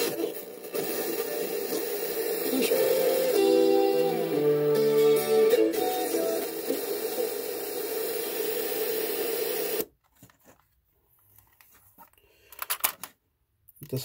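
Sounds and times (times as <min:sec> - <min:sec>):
radio static hiss: 0:00.0 - 0:09.9.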